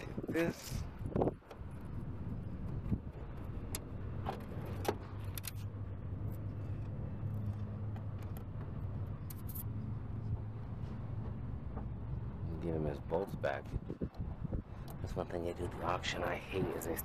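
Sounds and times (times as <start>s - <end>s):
vehicle engine idling: 0.0s - 17.0s
small metallic clicks and scrapes: 2.8s - 9.9s.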